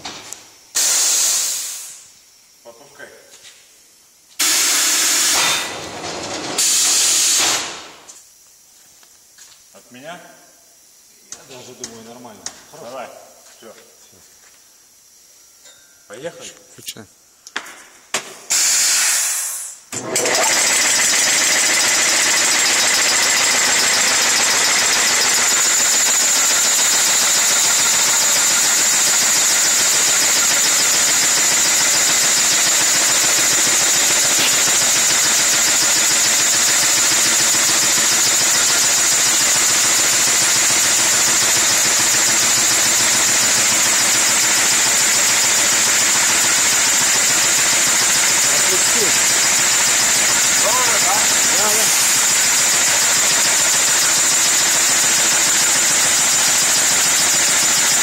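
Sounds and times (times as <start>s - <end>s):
sawmill cutting log: 20.0s - 58.0s.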